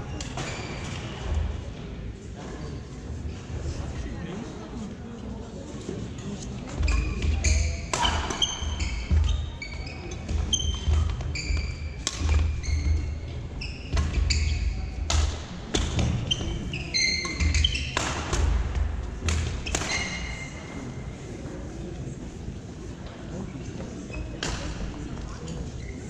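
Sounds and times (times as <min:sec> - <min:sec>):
shoe squeaks on floor: 0:00.2 - 0:01.2, 0:06.7 - 0:15.1, 0:15.8 - 0:18.0, 0:19.6 - 0:21.0, 0:25.8 - 0:26.0.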